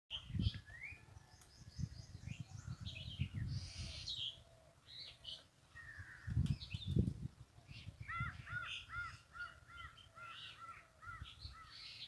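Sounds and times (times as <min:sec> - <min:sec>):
birds chirping: 0:00.1 - 0:12.0.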